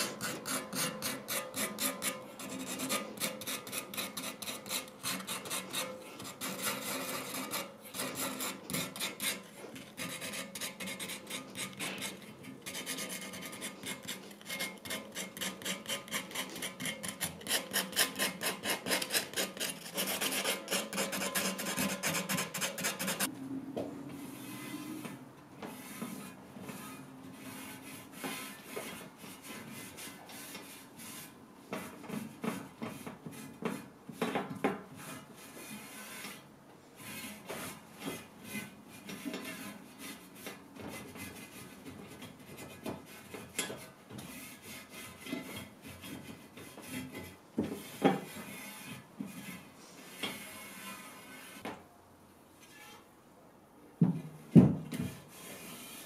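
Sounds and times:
sandpaper rubbing on wood: 0:15.2 - 0:23.3.

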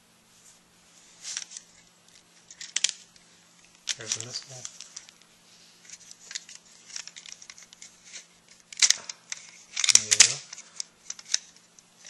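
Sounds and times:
plastic toy clicks and rustling: 0:02.5 - 0:03.0, 0:03.8 - 0:05.2, 0:05.9 - 0:11.7
plastic toy clattering: 0:02.5 - 0:03.1, 0:03.8 - 0:05.2, 0:05.9 - 0:11.7.

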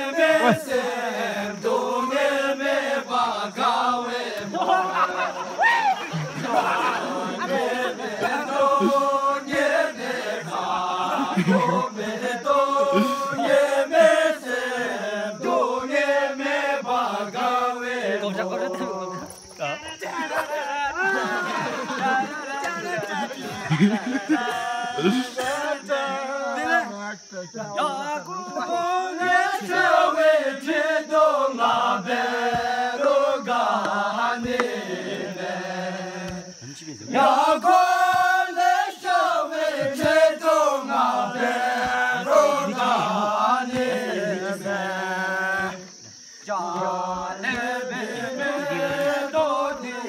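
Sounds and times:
group of men singing: 0:00.0 - 0:19.4, 0:20.0 - 0:27.0, 0:27.7 - 0:50.0.

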